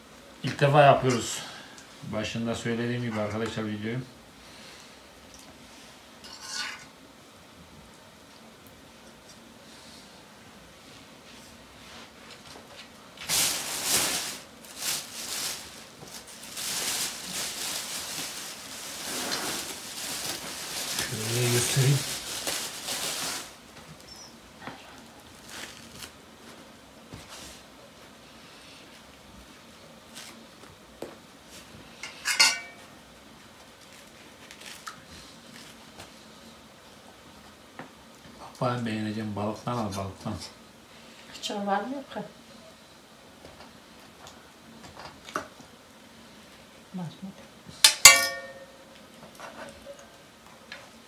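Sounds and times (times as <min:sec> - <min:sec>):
forks clinking on metal pan: 0:06.3 - 0:06.8, 0:32.0 - 0:32.8, 0:47.9 - 0:48.8
plastic bag rustling: 0:12.8 - 0:24.1, 0:25.2 - 0:26.7.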